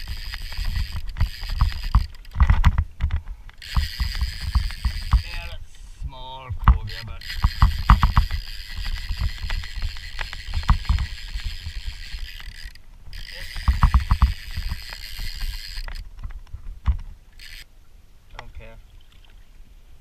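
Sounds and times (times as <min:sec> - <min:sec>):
fishing reel clicking: 0:00.0 - 0:05.6, 0:06.7 - 0:16.1, 0:17.3 - 0:17.7.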